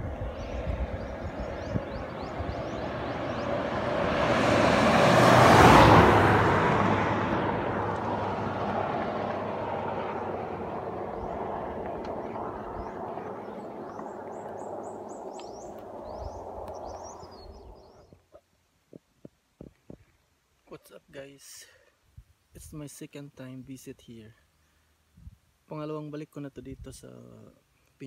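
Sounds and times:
birds chirping: 0.0s - 4.6s, 9.2s - 18.3s
vehicle passing by: 0.0s - 18.0s.

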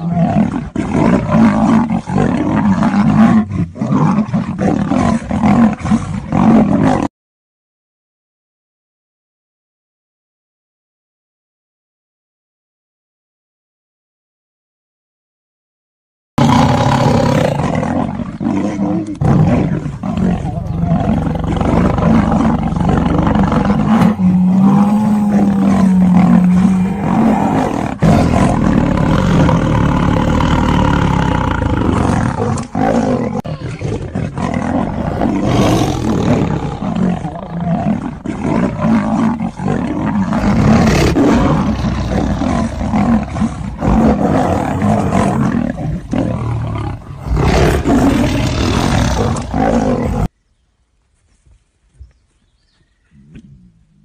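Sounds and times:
big cats snarling and roaring: 0.0s - 7.1s, 16.4s - 50.3s.

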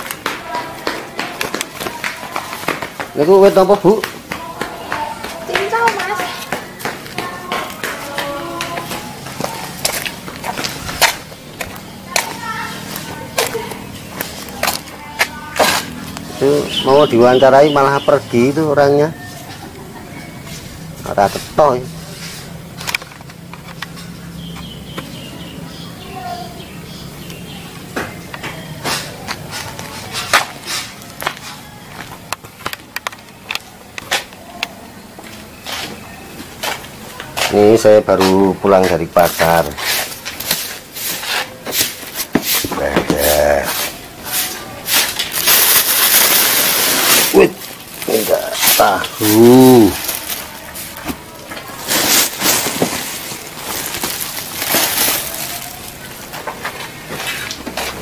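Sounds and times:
knocks and scuffs on concrete: 0.0s - 16.8s, 27.8s - 45.2s
plastic bag rustling and crinkling: 38.7s - 58.0s.

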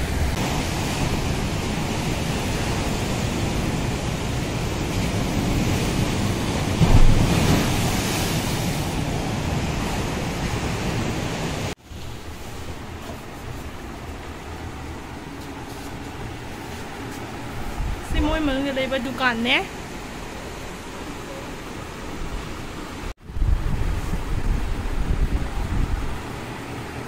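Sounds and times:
ocean surf breaking on beach: 0.0s - 18.4s
wind on microphone: 17.5s - 18.5s, 22.2s - 26.5s.

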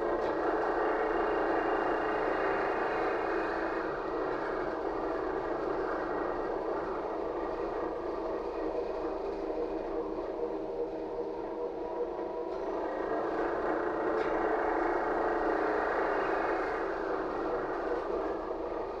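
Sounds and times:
trolleybus tyre rumble: 0.0s - 19.0s.

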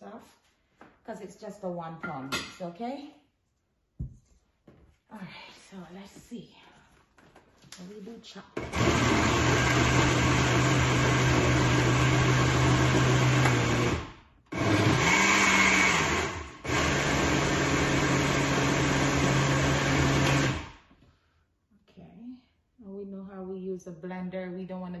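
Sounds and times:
blender chopping: 8.6s - 20.8s.

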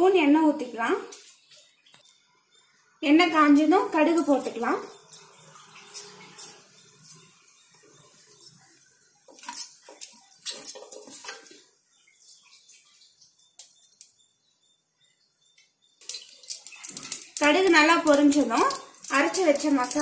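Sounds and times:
seeds crackling in hot oil: 16.0s - 20.0s.

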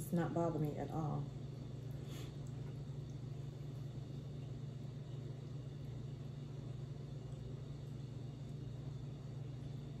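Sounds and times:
low background hum: 0.0s - 10.0s.

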